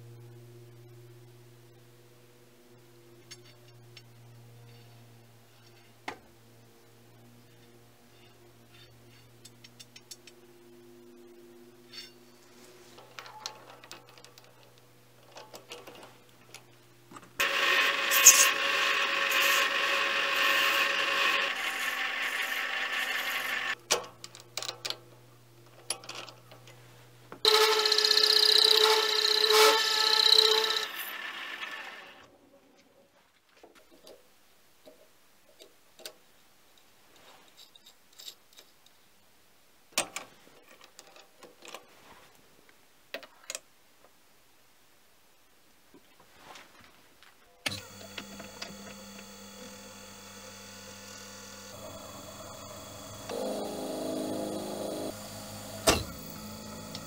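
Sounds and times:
low hum: 0.0 - 17.1
file rasping on spinning brass: 17.4 - 23.8, 27.5 - 32.2.

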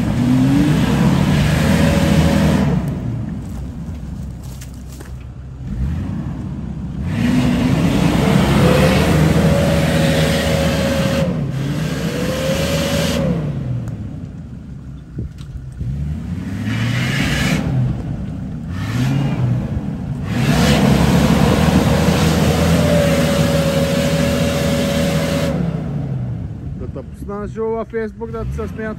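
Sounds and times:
engine revving hard: 0.0 - 3.0, 7.0 - 13.7, 15.8 - 17.9, 18.7 - 26.2.

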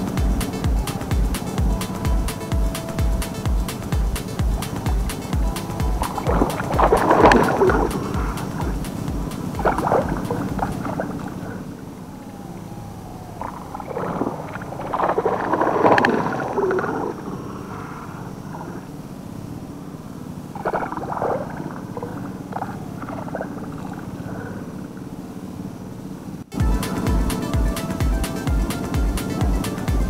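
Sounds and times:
fish splashing at water surface: 0.0 - 11.8, 13.2 - 18.9, 20.6 - 24.9
steady low hum: 0.0 - 30.0.

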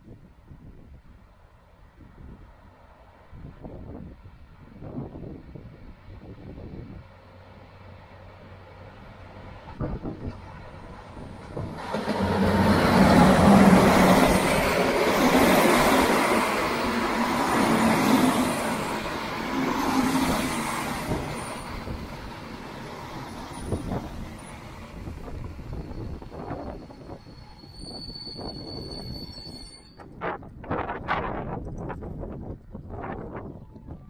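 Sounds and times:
diesel train passing: 1.1 - 31.9.

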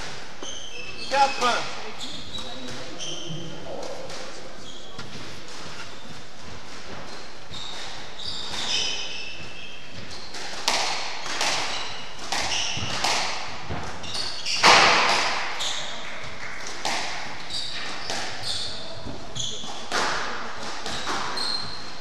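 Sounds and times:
shoes squeaking on wooden floor: 0.0 - 10.4, 11.7 - 13.0, 13.8 - 14.8, 15.4 - 16.3, 17.4 - 19.9, 20.8 - 22.0
squash ball hitting rackets and walls: 0.0 - 22.0.

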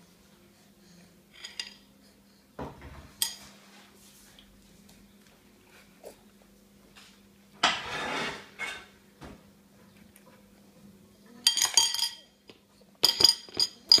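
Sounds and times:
metal spoon scraping a plate: 7.6 - 8.9.

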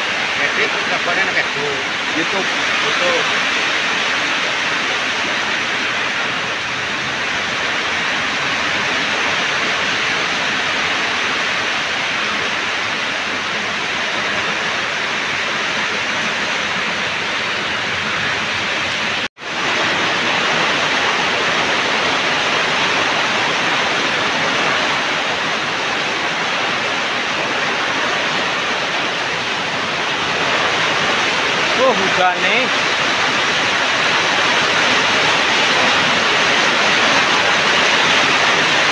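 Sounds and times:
heavy rain pouring: 0.0 - 38.9.

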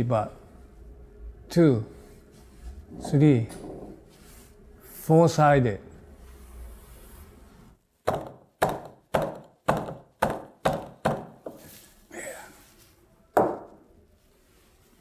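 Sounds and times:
fist knocking on wooden beam: 8.1 - 11.6.

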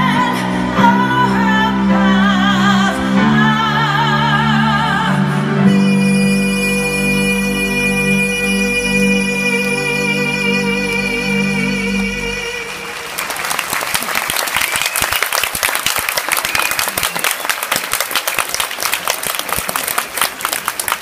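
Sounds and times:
stage music sustained chord: 0.0 - 13.6
audience applause: 12.4 - 21.0.

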